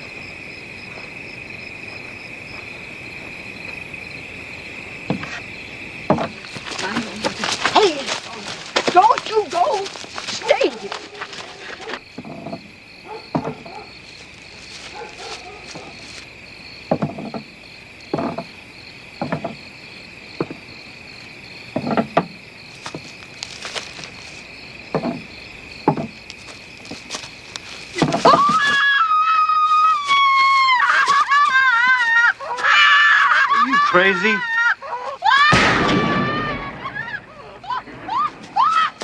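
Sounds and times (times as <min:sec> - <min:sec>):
night insects chirring: 0:00.0 - 0:39.0
thuds: 0:05.0 - 0:05.4, 0:06.0 - 0:13.8, 0:16.9 - 0:17.5, 0:19.2 - 0:19.6, 0:20.4 - 0:20.7, 0:21.7 - 0:24.2, 0:24.9 - 0:26.2, 0:27.9 - 0:28.8
woman screaming: 0:28.2 - 0:39.0.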